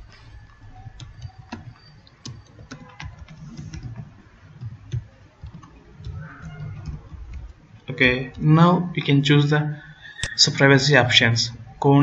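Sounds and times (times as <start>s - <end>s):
keyboard key clicks: 0.4s - 7.6s.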